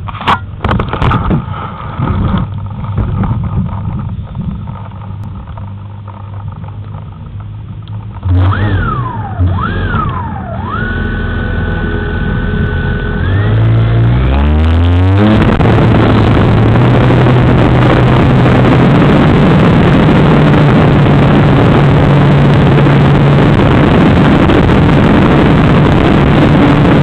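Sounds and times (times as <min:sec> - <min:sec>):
model aircraft motor whining: 0:08.2 - 0:27.0.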